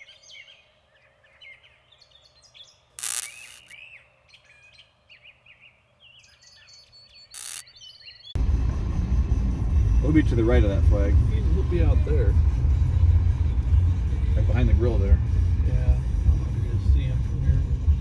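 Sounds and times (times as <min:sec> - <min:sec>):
songbirds chirping and singing: 0:00.0 - 0:08.4
loud hissy blips: 0:03.0 - 0:03.8, 0:07.4 - 0:07.6.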